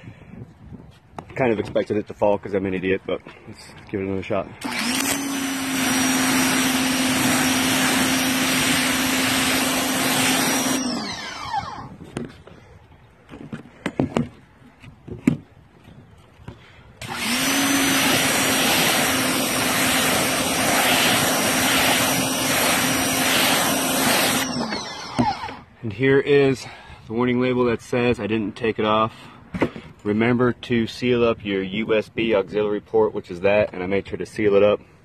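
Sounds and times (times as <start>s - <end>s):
pressure washer spraying: 4.6s - 11.6s, 17.0s - 25.4s.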